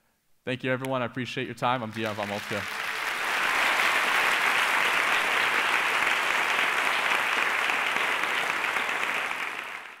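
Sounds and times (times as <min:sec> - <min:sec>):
audience applauding: 0:01.9 - 0:10.0.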